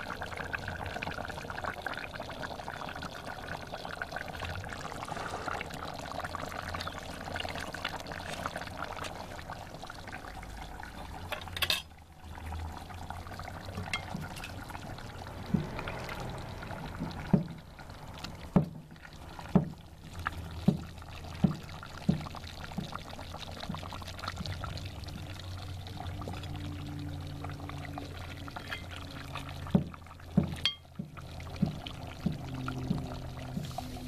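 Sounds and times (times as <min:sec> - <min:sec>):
thick sauce pouring and dripping: 0:04.6 - 0:27.0
metal spoon knocking on pot: 0:29.8 - 0:31.1.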